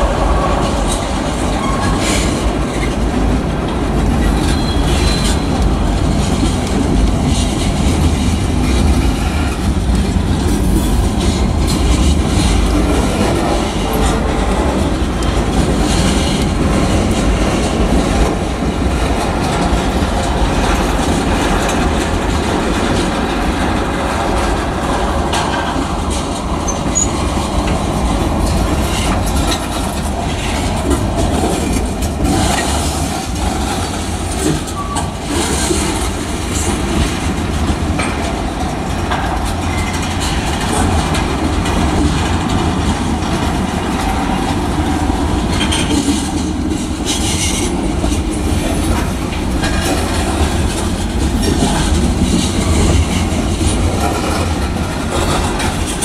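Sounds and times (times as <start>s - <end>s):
steel wheels rumbling on rail: 0.0s - 56.0s
wheels clicking over rail joints: 0.0s - 56.0s.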